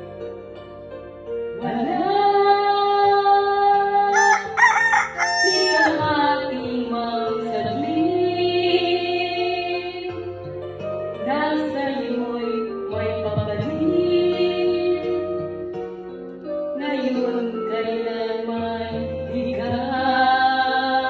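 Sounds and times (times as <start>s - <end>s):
woman singing into microphone: 1.6s - 4.5s, 5.4s - 10.3s, 11.2s - 15.6s, 16.8s - 21.0s
backing music: 4.1s - 6.8s.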